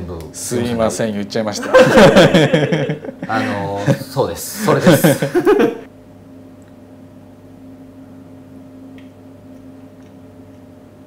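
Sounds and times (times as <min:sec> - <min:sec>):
low hum of room tone: 0:00.0 - 0:11.0
person laughing remark: 0:01.7 - 0:05.9.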